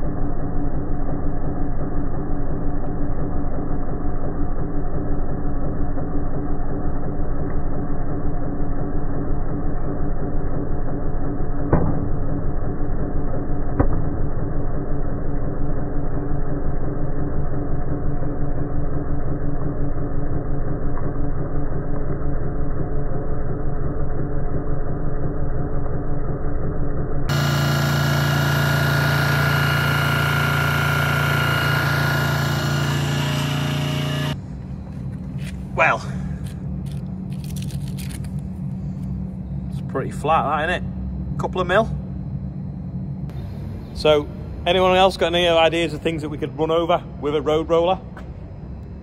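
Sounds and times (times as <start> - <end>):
road roller engine running: 27.3 - 46.2.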